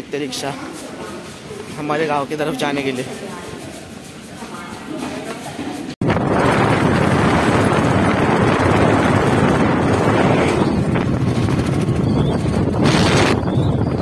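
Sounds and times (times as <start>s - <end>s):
wind buffeting microphone: 6.0s - 14.0s
auto-rickshaw engine running: 6.3s - 14.0s.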